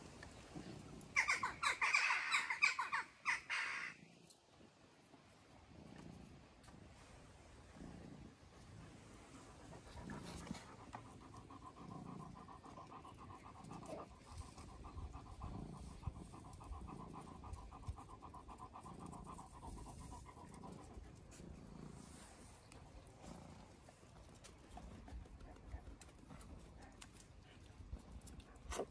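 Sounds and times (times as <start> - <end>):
dog panting: 7.8 - 28.9.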